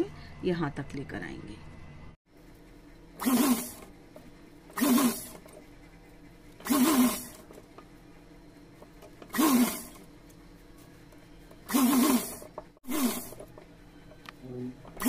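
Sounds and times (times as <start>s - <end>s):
sewing machine stitching: 3.2s - 3.9s, 4.7s - 5.7s, 6.6s - 7.6s, 9.2s - 10.0s, 11.6s - 13.5s.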